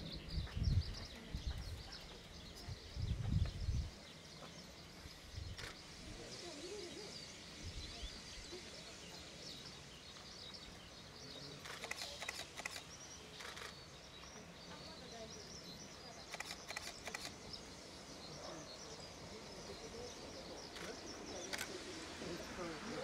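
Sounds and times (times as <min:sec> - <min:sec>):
birds chirping: 0:00.0 - 0:23.0
distant steam locomotive hissing: 0:04.2 - 0:23.0
sharp clicks: 0:11.6 - 0:13.8, 0:16.3 - 0:17.4.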